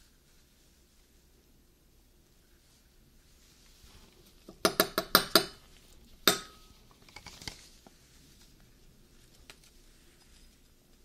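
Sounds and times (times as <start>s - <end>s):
metal spoon clinking glass bowl: 6.3s - 6.7s.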